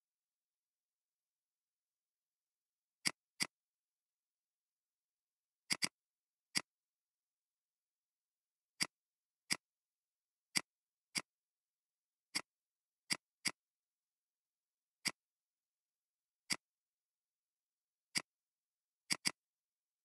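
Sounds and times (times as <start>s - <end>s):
computer mouse clicking: 3.0s - 3.6s, 5.6s - 6.7s, 8.7s - 9.7s, 10.5s - 11.4s, 12.3s - 13.7s, 15.0s - 15.3s, 16.4s - 16.7s, 18.1s - 18.4s, 19.0s - 19.5s.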